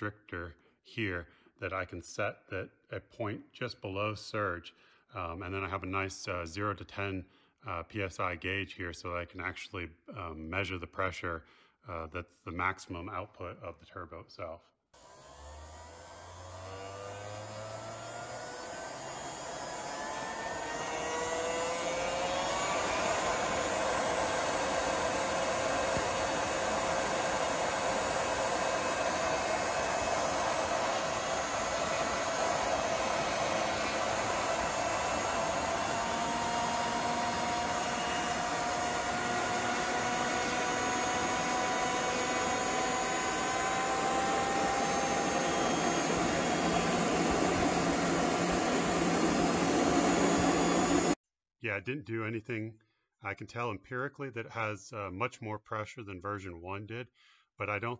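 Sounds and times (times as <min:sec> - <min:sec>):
compressor whine: 0:15.0 - 0:51.2.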